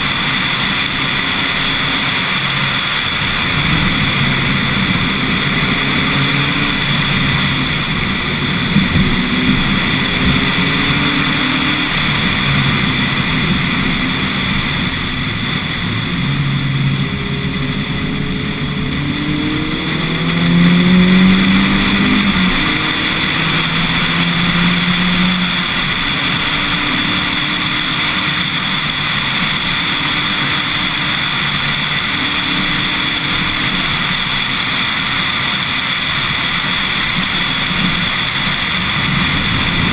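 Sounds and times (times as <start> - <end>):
car engine accelerating: 0.0 - 39.9.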